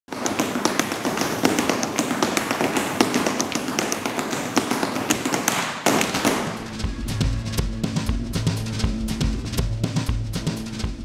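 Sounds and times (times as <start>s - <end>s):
broom taps on hard floor: 0.1s - 6.7s
broom bristles swishing: 5.1s - 10.8s.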